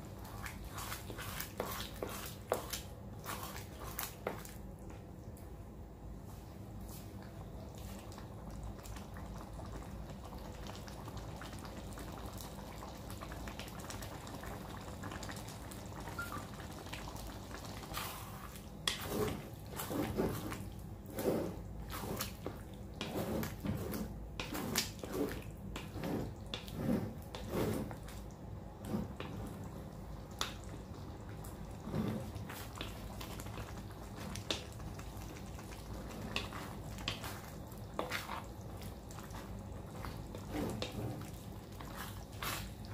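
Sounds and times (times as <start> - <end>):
stew simmering and bubbling: 0.0 - 42.9
wooden spatula stirring stew: 0.1 - 4.6, 16.9 - 42.9.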